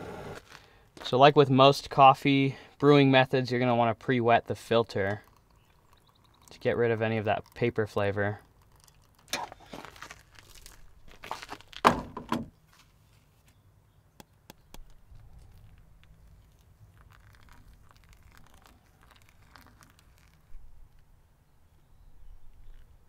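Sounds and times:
water pouring onto coffee grounds: 2.8s - 11.5s, 15.1s - 20.8s.

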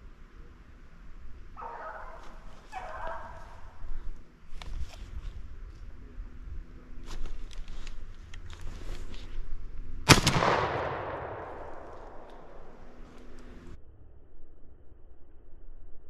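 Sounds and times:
light clicks and rustles: 7.0s - 9.5s
shotgun shot echoing: 10.1s - 12.9s.

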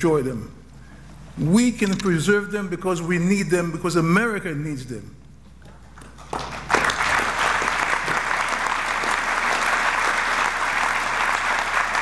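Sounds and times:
large audience applauding: 6.1s - 12.0s.

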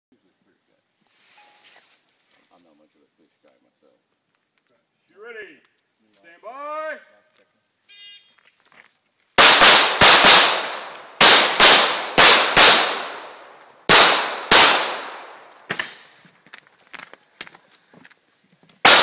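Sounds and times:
handgun shots with echo: 9.4s - 16.1s.

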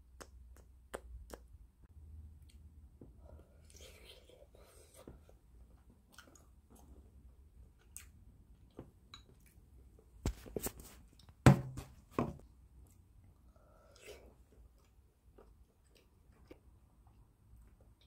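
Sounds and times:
person chewing food: 2.4s - 10.1s, 12.4s - 18.0s
plastic fork hitting bowl: 11.5s - 12.4s.

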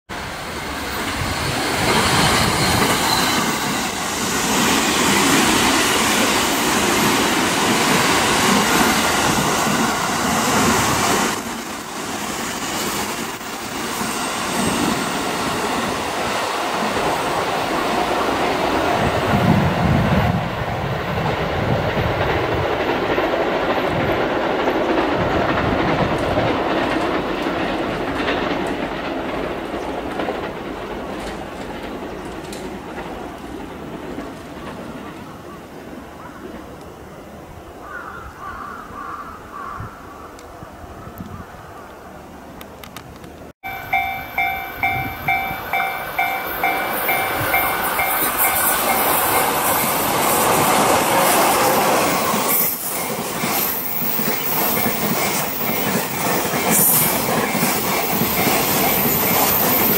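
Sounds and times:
train wheels clicking over rail joints: 0.3s - 18.8s, 20.9s - 35.3s, 42.6s - 59.9s
high wheel squeal: 0.6s - 4.3s.

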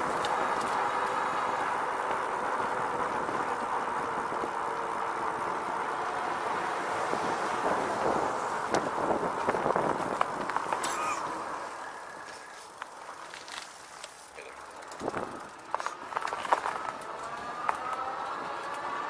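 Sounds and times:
bike tyre and drive noise: 0.0s - 19.0s
wind on microphone: 6.9s - 10.5s.

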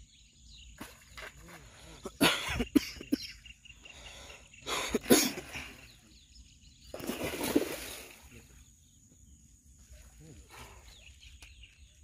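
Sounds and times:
fish thrashing and splashing: 6.9s - 8.2s.

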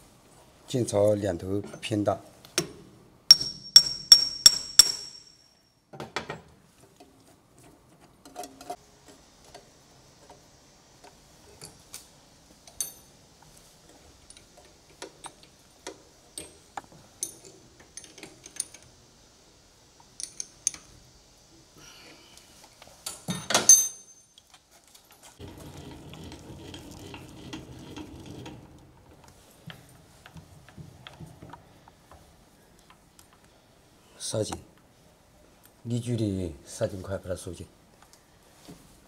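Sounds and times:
ringing metallic taps: 3.3s - 5.5s.

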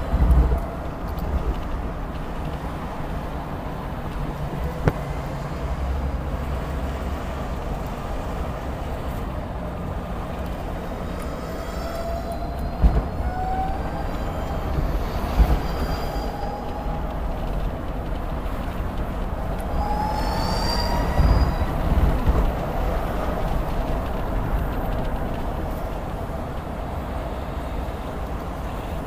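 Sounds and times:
road and tyre rumble: 0.0s - 29.0s.

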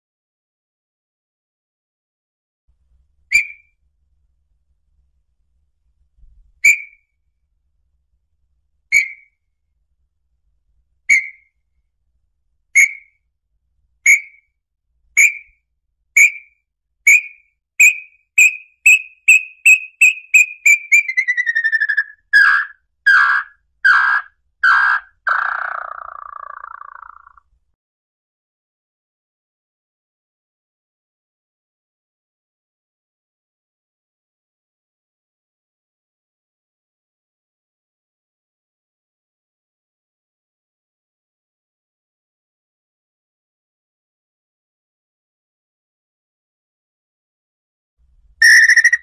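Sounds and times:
bird singing whistled notes: 3.3s - 3.8s, 6.6s - 7.1s, 8.9s - 9.4s, 11.1s - 11.6s, 12.8s - 13.2s, 14.1s - 14.5s, 15.2s - 15.6s, 16.2s - 27.4s, 48.4s - 49.0s
bird falling trill: 48.4s - 49.0s.

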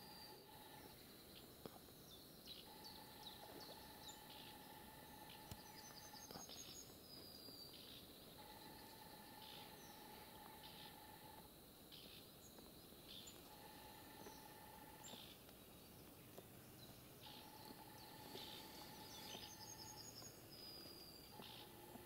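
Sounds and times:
faint steady tone: 0.0s - 22.0s
high bird trill: 17.2s - 22.0s
short high bird calls: 17.2s - 22.0s.

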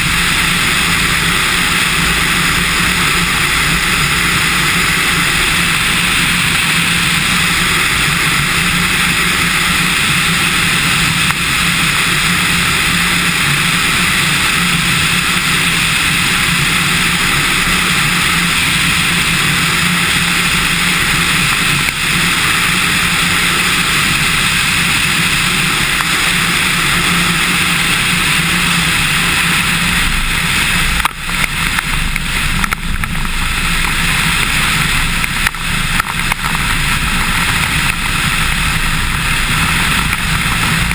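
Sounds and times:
air rushing across microphone: 0.0s - 40.9s
plane engine and propeller: 0.0s - 40.9s.

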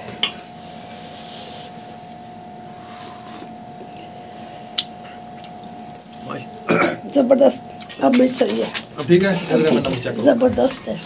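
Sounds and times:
quiet background hum: 0.0s - 11.0s.

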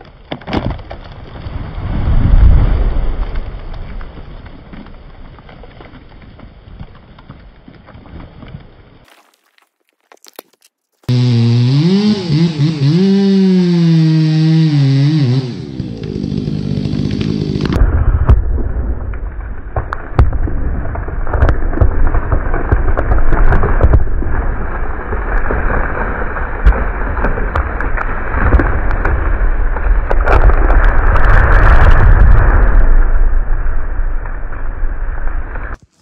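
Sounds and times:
wood cracking and popping: 0.0s - 11.2s, 15.7s - 36.0s
chainsaw winding down: 11.1s - 17.8s
tree crashing through trees: 11.1s - 36.0s.

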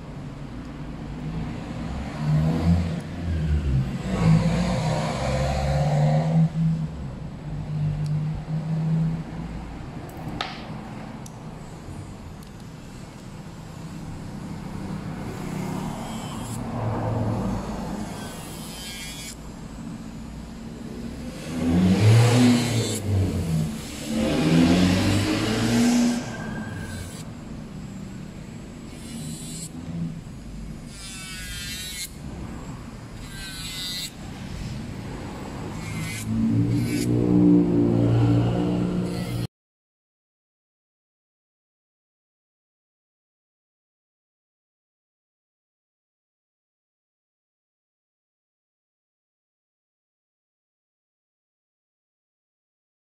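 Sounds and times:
electric nail drill whirring: 21.2s - 28.3s, 30.8s - 34.8s, 35.5s - 37.5s.

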